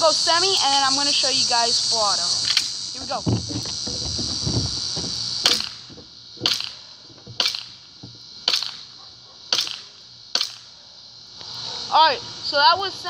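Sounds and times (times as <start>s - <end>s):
airsoft pistol shots: 5.4s - 6.8s, 7.4s - 7.8s, 8.4s - 8.9s, 9.5s - 10.7s.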